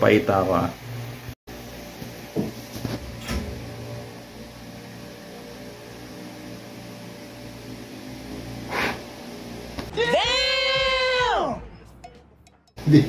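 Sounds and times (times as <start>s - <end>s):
low hum: 3.0s - 9.9s.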